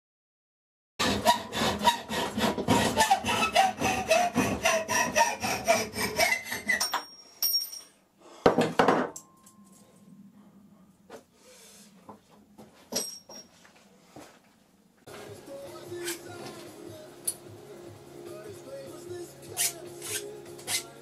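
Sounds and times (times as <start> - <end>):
hacksaw cutting metal: 1.0 - 7.0, 19.5 - 20.9
high metallic ringing: 6.8 - 8.0.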